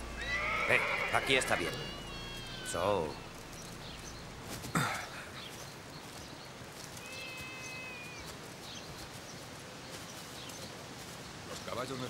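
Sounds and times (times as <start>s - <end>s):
horse crying: 0.0s - 3.5s, 7.0s - 8.3s
thin high call: 0.0s - 5.5s, 6.8s - 8.4s.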